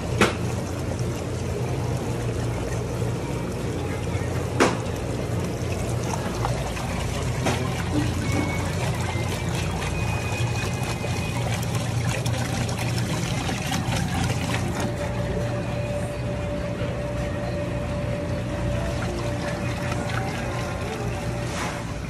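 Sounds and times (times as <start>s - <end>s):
steady low hum: 0.0s - 22.0s
water bubbling and trickling: 0.0s - 22.0s.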